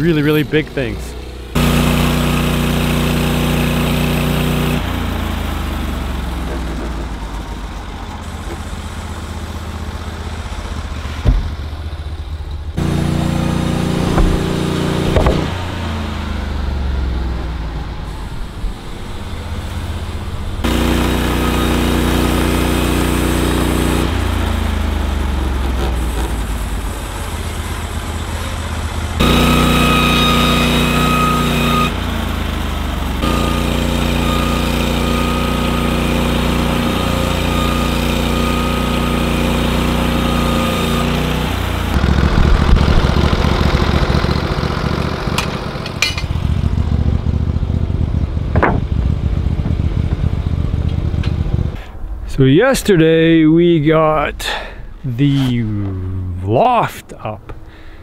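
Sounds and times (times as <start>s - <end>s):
sawmill engine running: 0.0s - 58.0s
saw blade cutting wood: 1.6s - 5.1s, 12.8s - 16.0s, 20.6s - 24.5s, 25.5s - 26.8s, 29.2s - 32.0s, 33.2s - 42.0s
sharp knocks: 11.2s - 11.8s, 13.9s - 15.6s, 48.5s - 50.3s.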